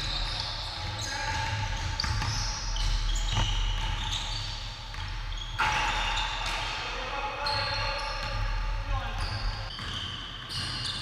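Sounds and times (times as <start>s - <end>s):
sneakers squeaking: 0.0s - 11.0s
basketball bouncing on hardwood: 1.7s - 4.0s, 4.9s - 5.8s.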